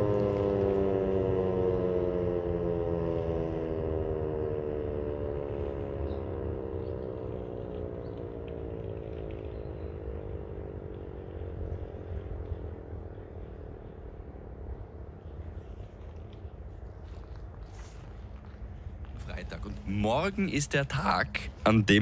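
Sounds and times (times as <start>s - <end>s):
siren winding down: 0.0s - 12.9s
steady low rumble: 0.0s - 22.0s.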